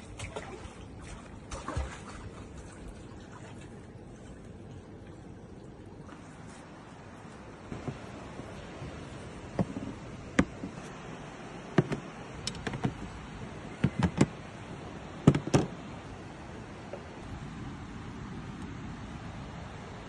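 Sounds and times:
faint steady hiss: 4.7s - 20.0s.

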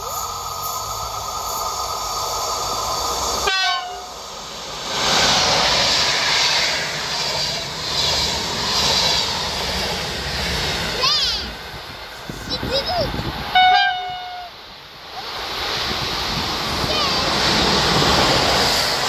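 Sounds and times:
train wheels rushing on rails: 0.0s - 19.0s
train horn chord: 3.4s - 4.1s, 13.6s - 14.5s.

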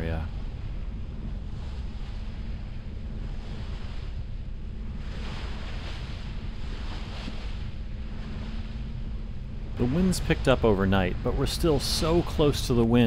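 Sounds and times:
low hum: 0.0s - 13.0s
wind rumbling on microphone: 0.0s - 13.0s
rushing water: 5.2s - 13.0s.

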